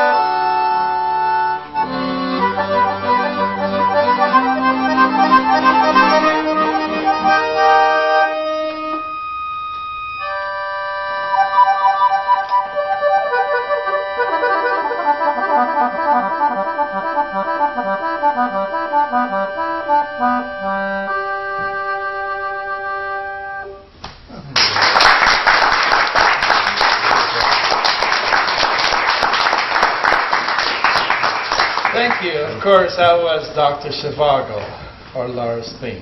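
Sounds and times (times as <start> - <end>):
accordion playing: 0.0 - 24.0
audience applause: 24.5 - 32.5.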